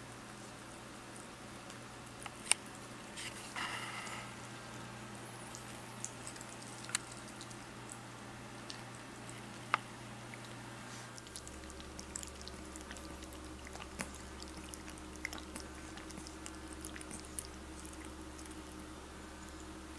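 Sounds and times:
animal feeding with wet clicks: 0.5 - 3.0, 4.4 - 19.9.

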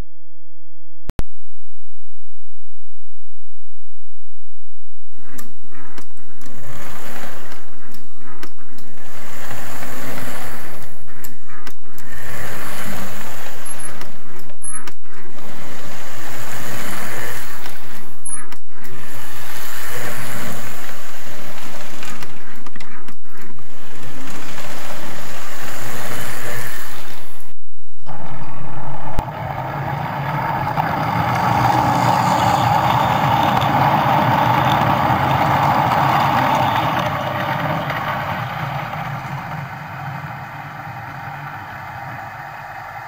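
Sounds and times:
toy train motor hum: 5.8 - 27.3, 29.2 - 43.0
toy train wheel rattle: 29.2 - 41.4.

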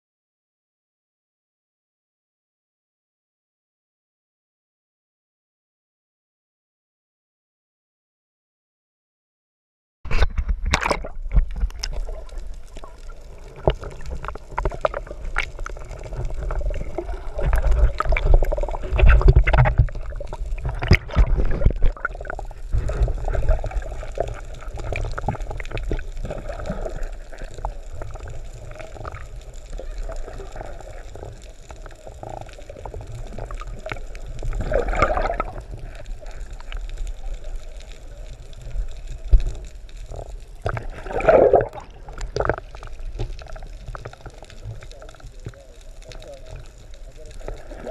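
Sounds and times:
muffled underwater rumble: 10.1 - 47.9
water sloshing and gurgling: 10.1 - 47.9.

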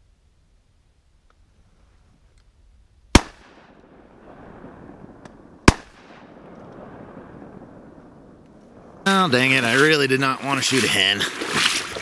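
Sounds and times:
shotgun shots: 3.1 - 3.9, 5.6 - 6.6.

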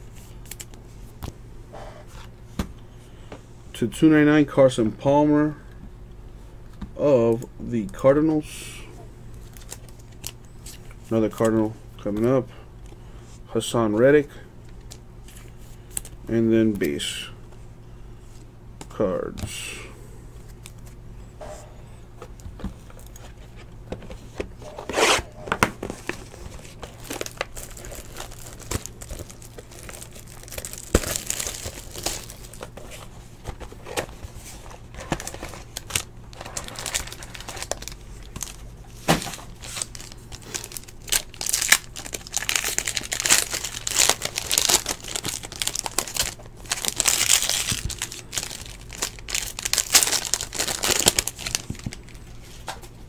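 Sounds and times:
foil wrappers tearing and crinkling: 26.0 - 32.8, 34.8 - 52.2.

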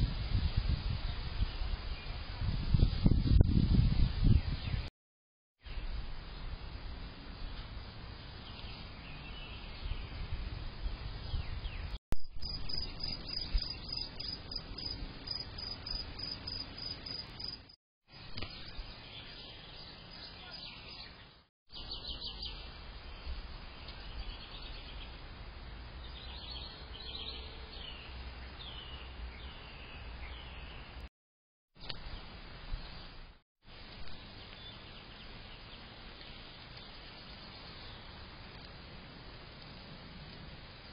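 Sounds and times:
birds chirping: 8.2 - 22.7.

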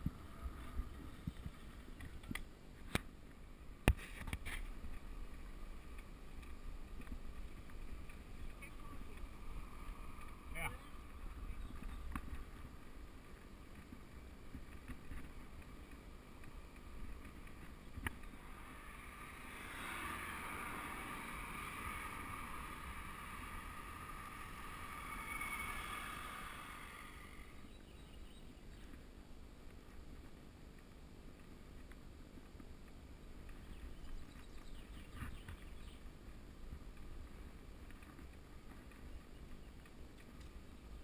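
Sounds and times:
wind rumbling on microphone: 0.0 - 3.0, 3.8 - 41.0
tyre and road hiss: 7.3 - 27.8.

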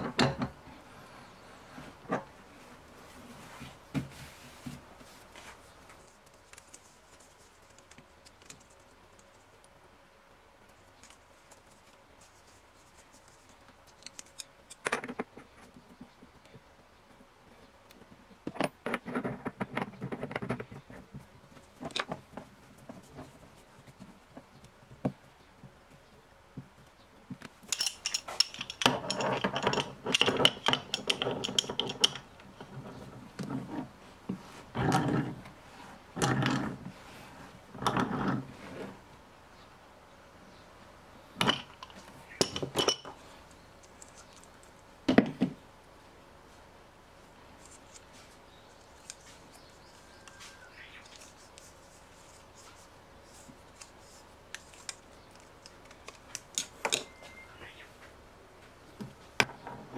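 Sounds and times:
metal pipe fittings clinking: 27.7 - 32.2, 41.4 - 43.1.

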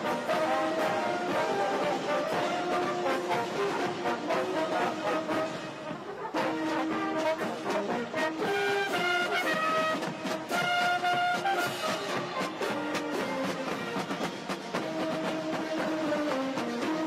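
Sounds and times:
marching band playing: 0.0 - 17.0
drum beat: 6.9 - 17.0.

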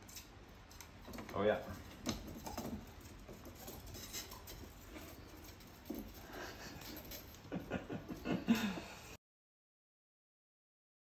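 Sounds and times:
man chuckling softly: 6.2 - 9.2.

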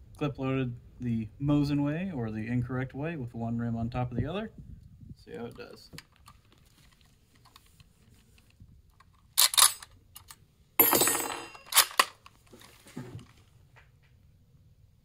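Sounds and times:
cartridges clicking into magazine: 9.0 - 10.4, 11.6 - 12.3
rifle bolt clacking: 9.0 - 10.4, 11.6 - 12.3
ringing metal rattle: 10.8 - 12.0.

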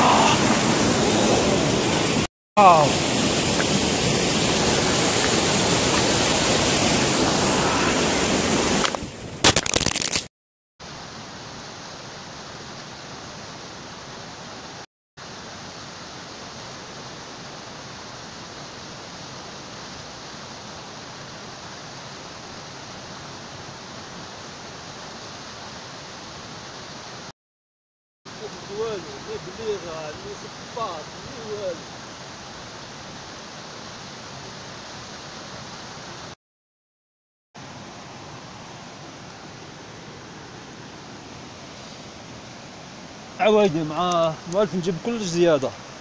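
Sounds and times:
water rushing in rocky stream: 0.0 - 10.3, 28.3 - 36.4.

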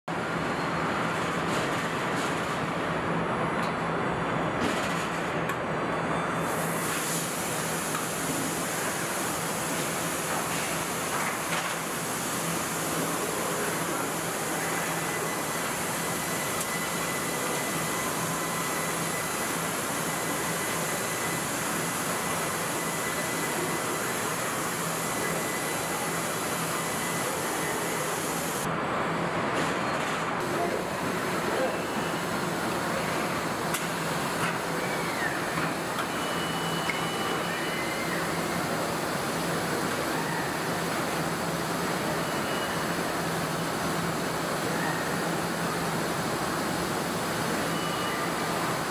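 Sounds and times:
machinery hiss: 6.4 - 28.7.

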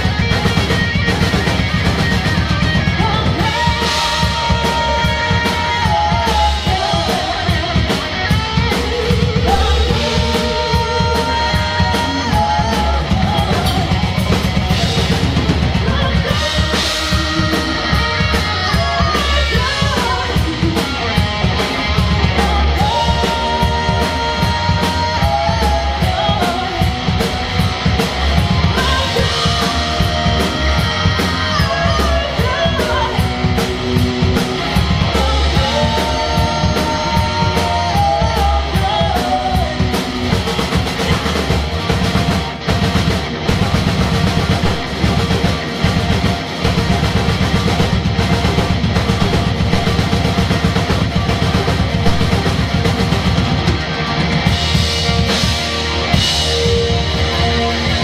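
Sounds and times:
rock band playing: 0.0 - 58.0
woman singing: 2.7 - 15.0, 15.7 - 21.2, 22.0 - 27.2, 28.6 - 40.6.

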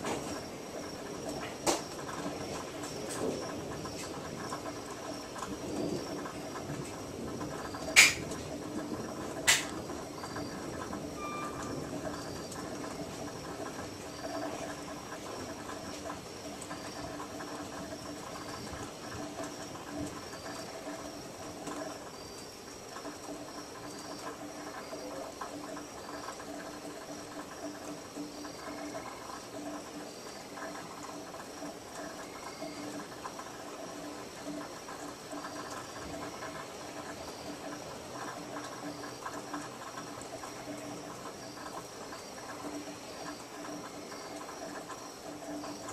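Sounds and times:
frogs and insects calling: 0.0 - 45.9
sharp clicks: 7.9 - 8.4, 9.4 - 9.8.

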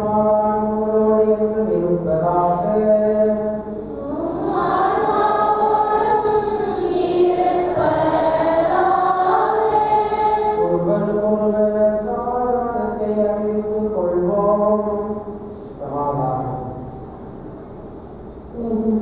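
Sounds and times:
lower voice singing held notes: 0.0 - 16.8
choir and congregation singing: 2.3 - 14.3.

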